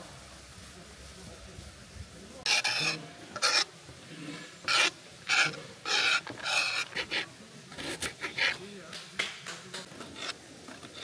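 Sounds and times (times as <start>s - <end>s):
faint outdoor hiss: 0.0s - 11.0s
rough rasping scrapes: 2.4s - 8.6s, 9.9s - 11.0s.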